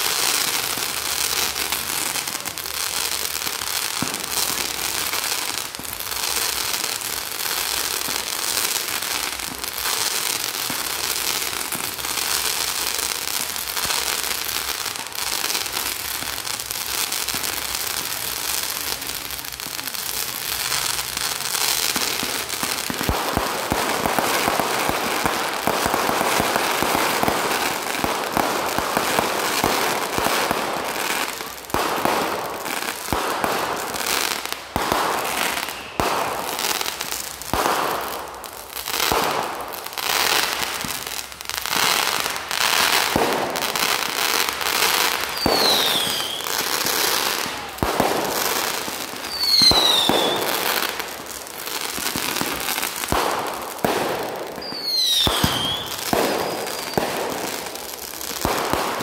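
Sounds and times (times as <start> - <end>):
fireworks aerial bursts with crackle: 0.0 - 59.0
fireworks launch bangs: 20.6 - 59.0.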